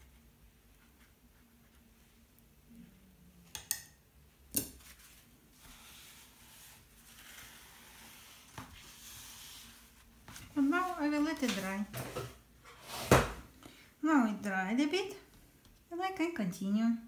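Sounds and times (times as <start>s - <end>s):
paper tissue rustling: 4.8s - 11.9s.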